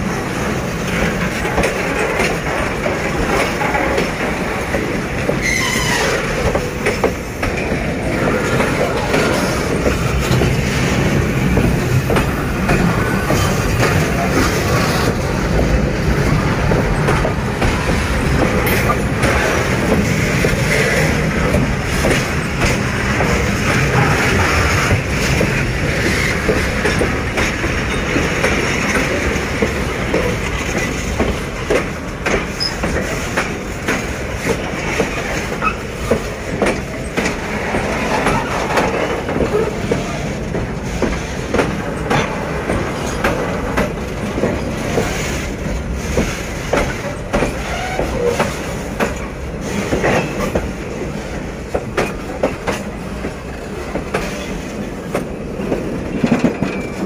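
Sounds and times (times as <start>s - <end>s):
steel wheels rumbling on rail: 0.0s - 57.0s
wheels clacking over rail joints: 0.0s - 57.0s
high wheel squeal: 5.4s - 6.3s.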